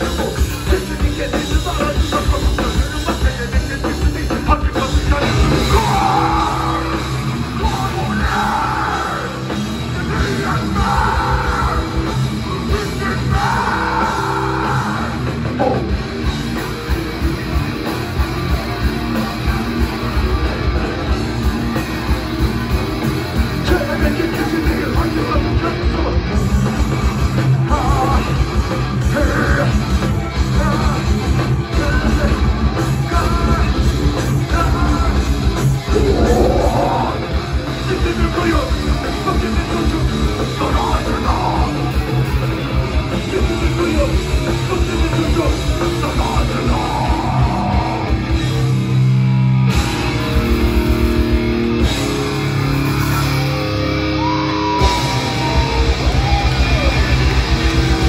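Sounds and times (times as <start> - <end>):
vocal singing: 0.0 - 16.0, 33.0 - 42.2, 43.2 - 48.1
bass: 0.0 - 58.0
distorted electric guitars: 0.0 - 58.0
drums: 0.0 - 58.0.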